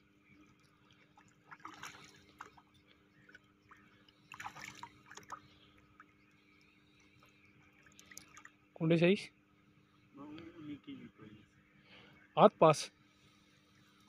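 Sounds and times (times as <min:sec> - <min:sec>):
fish splashing in shallow water: 0:00.3 - 0:08.7.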